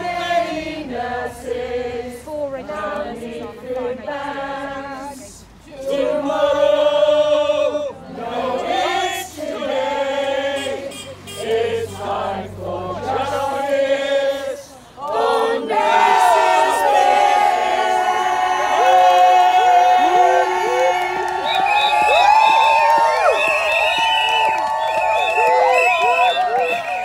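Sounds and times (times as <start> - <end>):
group of voices singing: 0.0 - 21.6.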